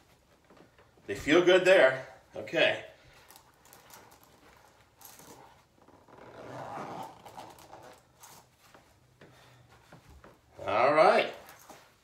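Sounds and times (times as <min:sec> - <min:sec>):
light clicks and rustles: 0:03.1 - 0:05.7.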